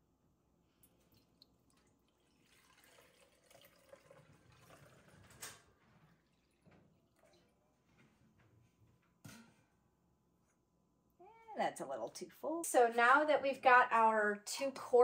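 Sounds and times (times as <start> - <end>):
milk trickling into jar: 0.8 - 7.6.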